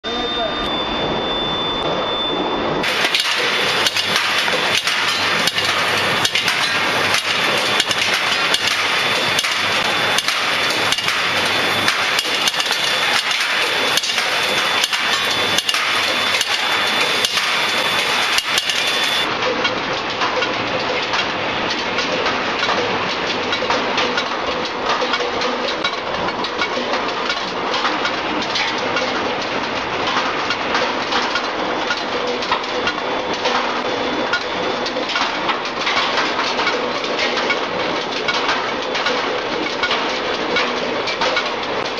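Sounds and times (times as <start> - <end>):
high steady whine: 0.0 - 19.4
rolling mill machine clatter: 0.1 - 41.9.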